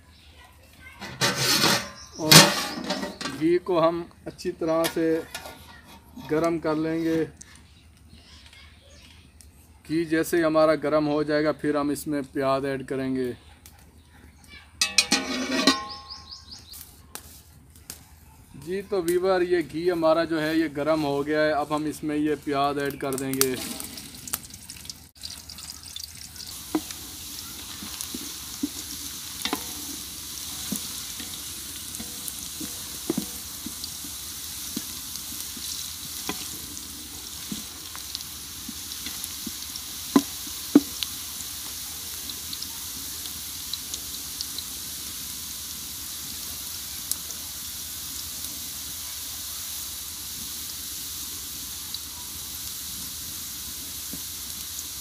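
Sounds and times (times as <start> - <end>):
onions sizzling in a pot: 0.2 - 7.3, 14.8 - 17.4, 18.6 - 55.0
wooden stirrer scraping pot: 1.0 - 3.4, 5.2 - 6.7, 14.8 - 16.2, 26.5 - 38.0.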